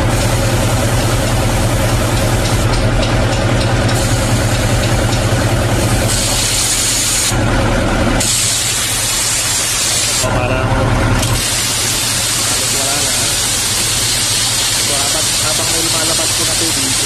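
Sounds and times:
diesel truck engine idling: 0.0 - 17.0
compressed air hissing out: 5.8 - 7.3, 8.2 - 10.3, 11.3 - 17.0
water spraying: 8.2 - 10.4, 11.2 - 17.0.

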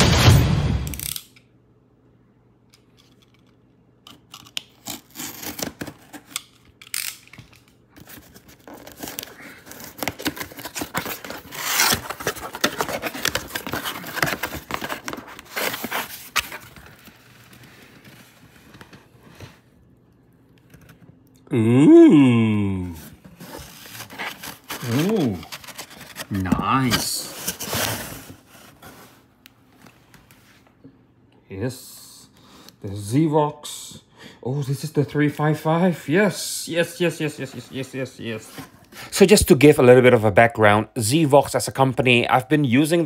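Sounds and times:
packing tape ripping: 4.1 - 18.2, 23.7 - 28.3
cardboard rustling: 8.0 - 19.8, 23.0 - 30.6.

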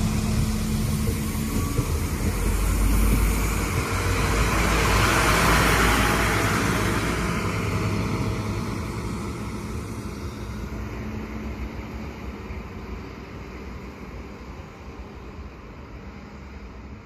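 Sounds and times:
diesel train engine: 0.0 - 17.0
train wheels on rails: 0.0 - 17.0.

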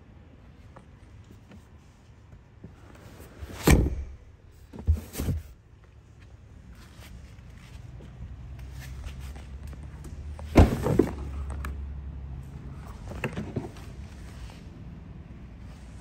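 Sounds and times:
car door shutting: 3.6 - 4.3.

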